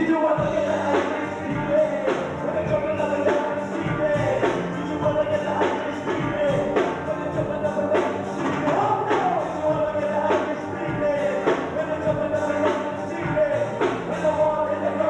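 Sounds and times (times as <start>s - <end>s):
bass: 0.0s - 15.0s
drums: 0.0s - 15.0s
electric guitars: 0.0s - 15.0s.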